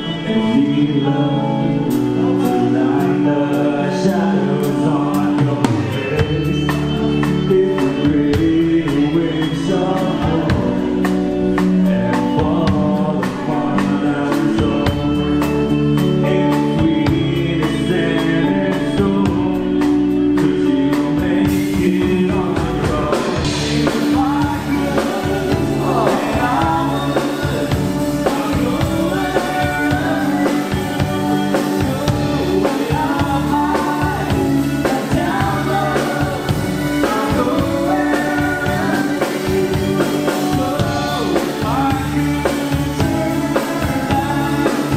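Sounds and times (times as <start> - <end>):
drums: 0.0 - 44.9
electric guitar: 0.0 - 44.9
keyboard: 0.0 - 44.9
man singing: 0.0 - 44.9
woman singing: 20.4 - 44.9.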